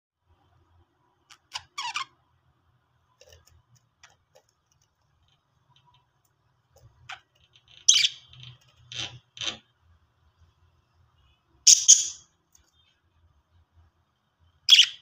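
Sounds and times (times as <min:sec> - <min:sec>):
budgies chirping: 0:11.7 - 0:12.2, 0:14.7 - 0:15.0.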